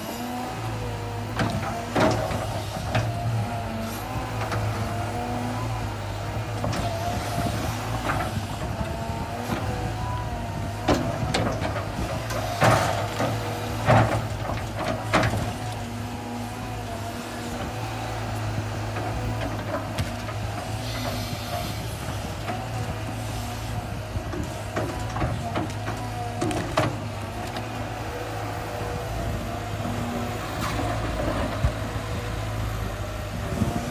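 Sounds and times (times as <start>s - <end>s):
hydraulic whine: 0.0s - 25.4s
excavator diesel engine humming: 0.0s - 33.9s.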